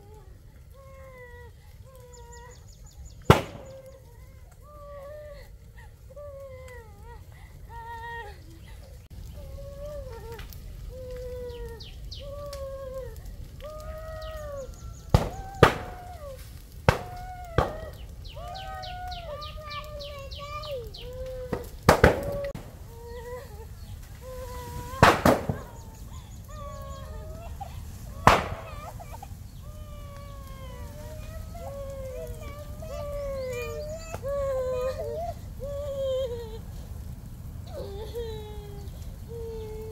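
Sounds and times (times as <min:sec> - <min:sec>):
animal crying: 0:08.5 - 0:36.8.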